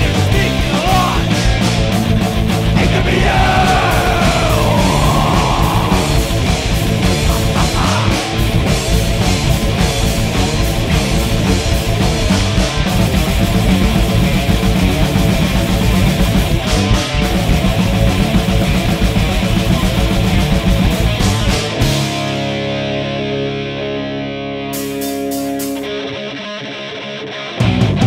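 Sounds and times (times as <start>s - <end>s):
shouted vocals: 0.0s - 1.6s, 2.7s - 8.6s
thrash metal band playing: 0.0s - 28.0s.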